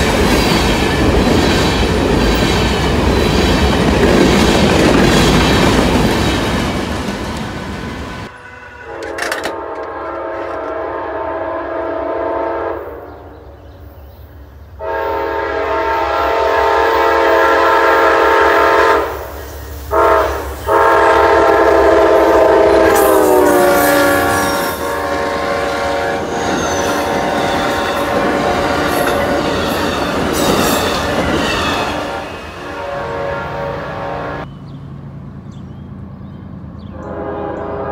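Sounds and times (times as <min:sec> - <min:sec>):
train horn blasts: 0:08.2 - 0:13.4, 0:14.8 - 0:19.3, 0:19.9 - 0:34.5, 0:36.9 - 0:37.9
train wheels clacking over rail joints: 0:09.0 - 0:10.8.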